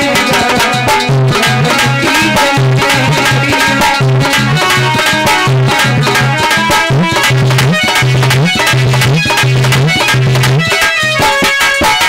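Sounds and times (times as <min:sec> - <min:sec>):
devotional song melody: 0:00.0 - 0:08.8
rhythmic drum beat: 0:00.0 - 0:12.0.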